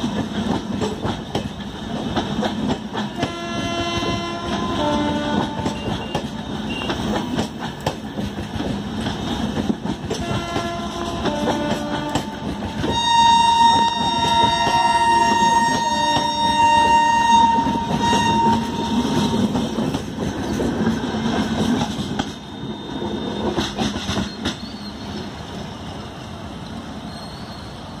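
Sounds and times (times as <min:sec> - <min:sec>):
wheels clacking over rail joints: 0:00.0 - 0:25.3
train coaches rumbling past: 0:00.0 - 0:28.0
high-pitched metallic squeals: 0:12.9 - 0:19.2.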